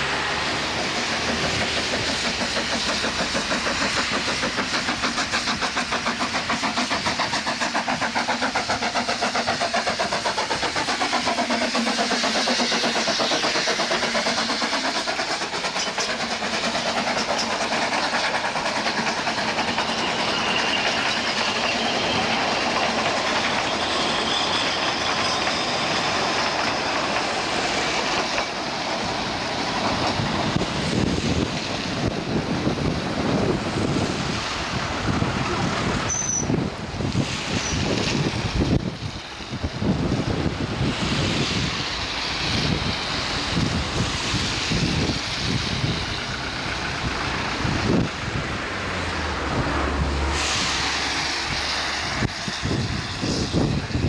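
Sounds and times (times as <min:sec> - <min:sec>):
tyre hiss on wet road: 0:00.0 - 0:25.1, 0:32.7 - 0:54.0
train carriages rolling past: 0:00.0 - 0:54.0
wind buffeting microphone: 0:29.0 - 0:54.0
car engines: 0:46.4 - 0:50.8.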